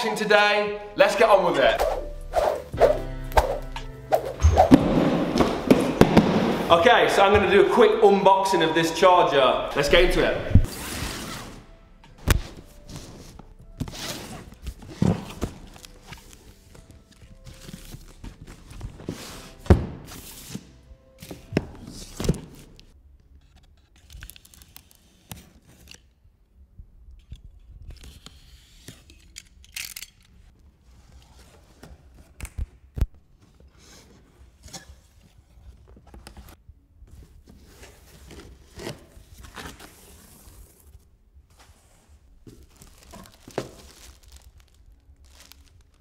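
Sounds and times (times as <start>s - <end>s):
cardboard rustling: 33.8s - 46.0s
tape tearing: 42.6s - 46.0s.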